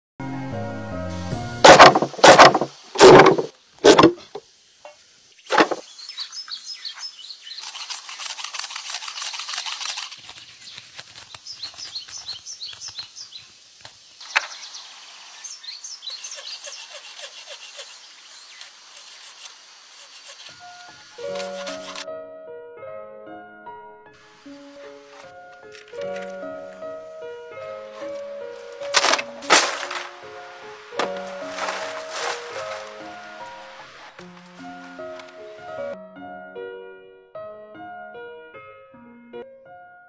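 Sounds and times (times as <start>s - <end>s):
blade chopping dry grass stalks: 1.6s - 4.4s, 5.5s - 5.9s, 7.5s - 13.1s, 16.4s - 22.0s, 28.0s - 35.4s
knife scraping stalks: 1.6s - 4.4s, 5.5s - 5.8s, 7.4s - 13.1s, 16.2s - 22.1s, 27.9s - 35.5s
birds chirping: 5.3s - 8.0s, 10.5s - 20.0s.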